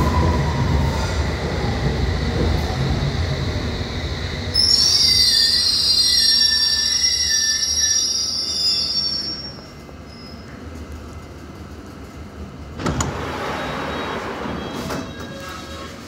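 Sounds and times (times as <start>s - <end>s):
train low rumble: 0.0s - 6.5s, 9.0s - 16.0s
train wheels squealing: 4.5s - 10.6s.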